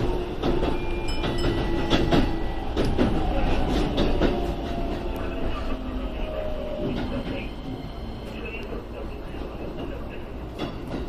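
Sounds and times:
train wheels knocking over joints: 0.0 - 5.1
train rolling rumble: 0.0 - 11.0.

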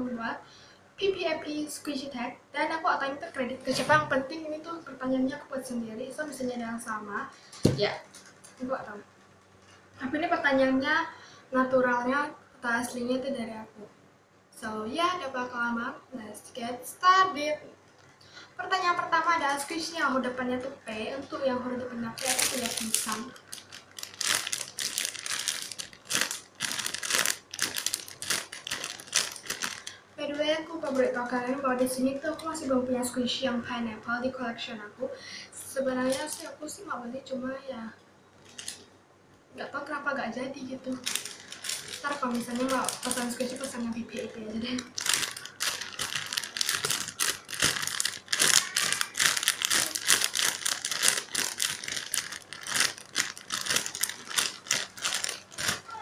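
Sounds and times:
plastic bag crinkling: 19.6 - 32.5, 36.0 - 36.6, 38.4 - 38.9, 40.6 - 56.0.

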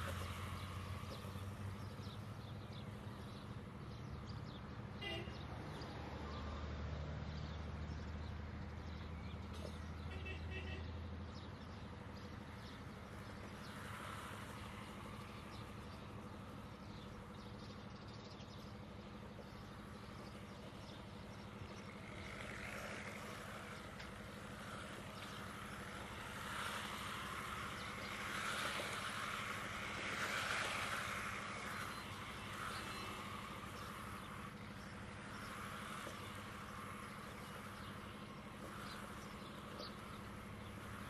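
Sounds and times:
rc car running and drifting: 21.4 - 41.0.

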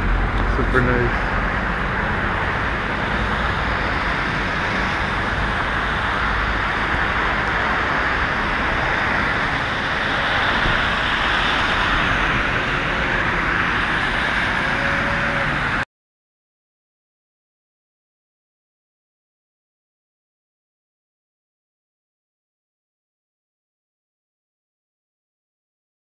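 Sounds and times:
cars driving on slushy road: 0.0 - 15.8.

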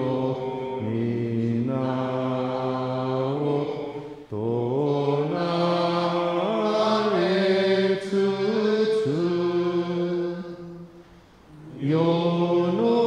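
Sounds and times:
man chanting: 0.0 - 10.8.

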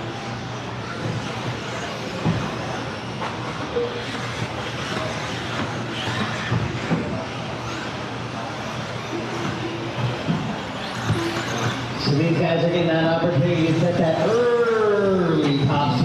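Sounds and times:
electric rc cars running: 0.0 - 16.0
cars clattering over jumps: 0.1 - 12.0.

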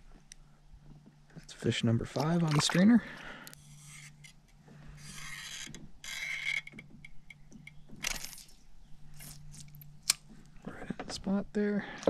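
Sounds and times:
fishing reel whirring: 3.6 - 8.6.

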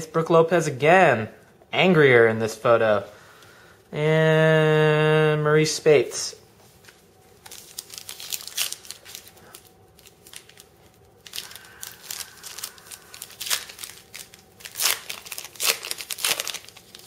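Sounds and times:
foil wrapper tearing and crinkling: 7.4 - 17.0.

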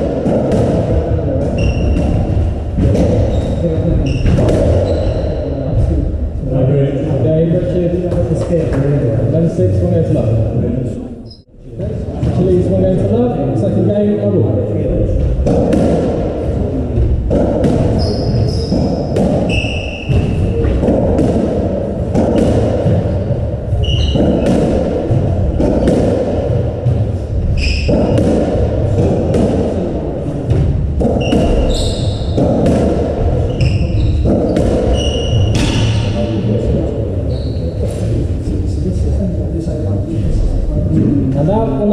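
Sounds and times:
shoes squeaking on wooden floor: 1.5 - 2.2, 3.3 - 5.6, 17.9 - 20.8, 22.2 - 24.6, 27.4 - 28.2, 31.0 - 32.6, 33.4 - 36.2.

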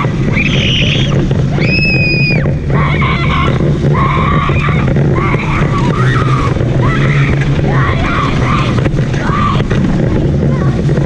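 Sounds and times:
go-kart motor humming: 0.0 - 11.0.

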